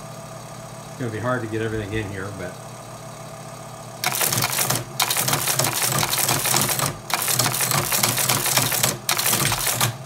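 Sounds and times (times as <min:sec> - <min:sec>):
machine motor hum: 0:00.0 - 0:10.0
teletype keys clattering: 0:04.0 - 0:10.0.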